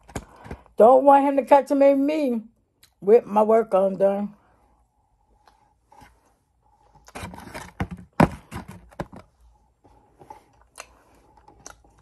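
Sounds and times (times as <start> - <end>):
rustling and scraping handling noise: 5.3 - 11.3.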